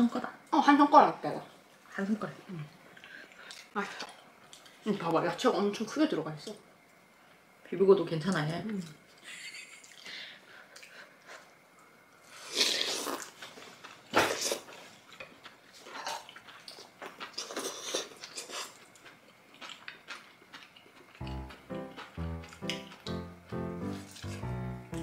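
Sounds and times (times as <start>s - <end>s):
chewing: 2.9s - 4.8s, 12.6s - 23.1s
music: 21.2s - 25.0s.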